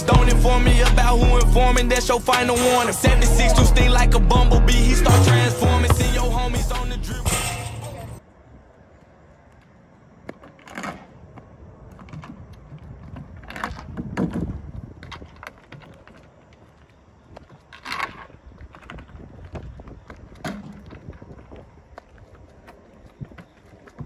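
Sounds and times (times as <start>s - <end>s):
skateboard wheels rolling on asphalt: 0.0s - 3.1s, 8.2s - 24.0s
skateboard clacks and scrapes: 9.6s - 24.0s.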